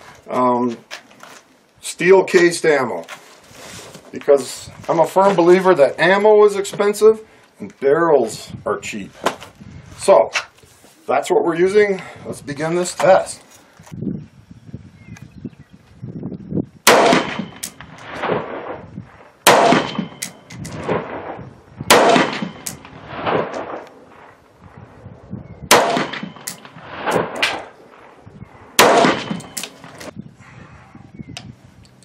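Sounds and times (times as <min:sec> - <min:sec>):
rifle shots: 0:16.8 - 0:24.4, 0:25.7 - 0:30.1
gunshot echoes: 0:16.9 - 0:18.8, 0:19.5 - 0:24.3, 0:25.7 - 0:28.2, 0:28.8 - 0:30.0.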